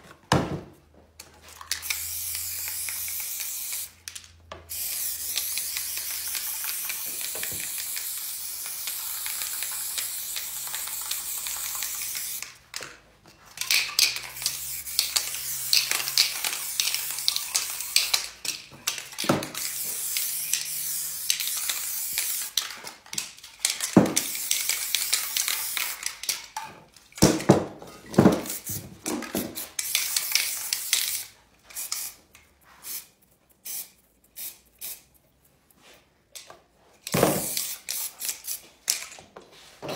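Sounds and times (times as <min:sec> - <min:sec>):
spray paint cans hissing: 0:01.5 - 0:12.8, 0:13.4 - 0:26.6, 0:28.3 - 0:35.2, 0:37.1 - 0:39.2.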